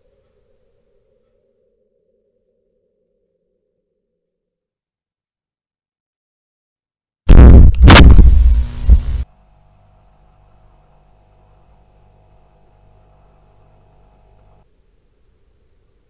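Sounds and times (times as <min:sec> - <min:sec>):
hard bang: 0:07.3 - 0:09.1.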